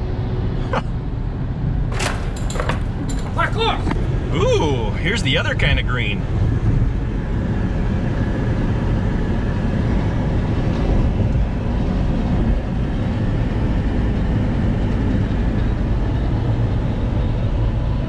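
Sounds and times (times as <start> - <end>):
tyres on pavement: 1.9 - 4.1.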